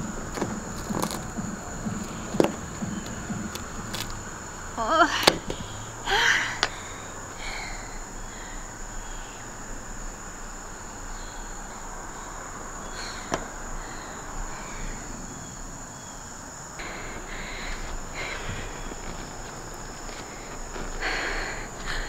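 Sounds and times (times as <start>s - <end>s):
high-pitched insect chorus: 0.0s - 22.0s.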